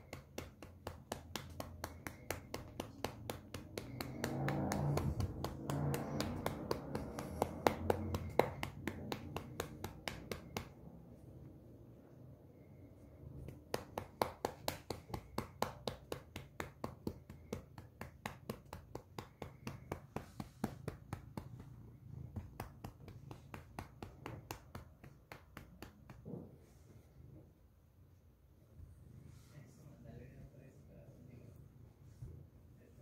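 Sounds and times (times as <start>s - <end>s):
hand patting cat fur: 0.0s - 11.6s, 12.7s - 27.4s.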